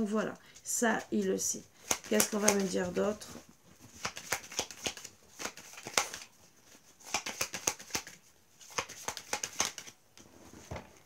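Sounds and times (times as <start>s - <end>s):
cards being shuffled: 1.8s - 10.0s.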